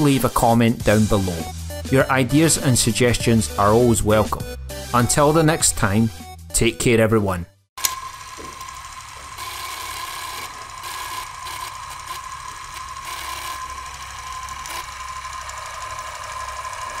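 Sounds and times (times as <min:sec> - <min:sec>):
film projector whirring rattle: 0:07.8 - 0:17.0.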